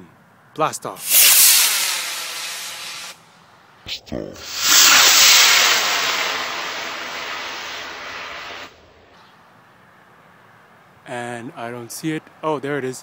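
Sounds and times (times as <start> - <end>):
rocket motor hissing: 1.0 - 3.2, 4.4 - 8.8.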